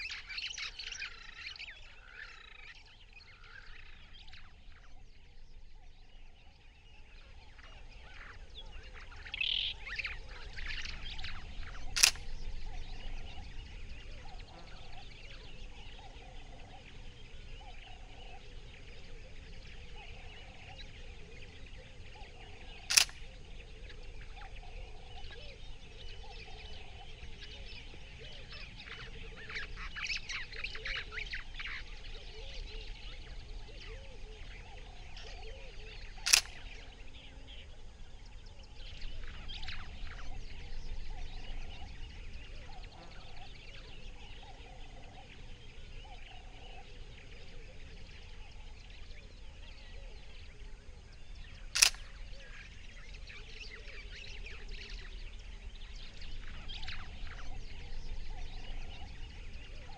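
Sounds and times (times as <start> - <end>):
birds chirping and calling: 0.0 - 59.9
sharp clicks: 11.8 - 12.4, 22.9 - 23.3, 36.2 - 36.8, 51.7 - 52.1.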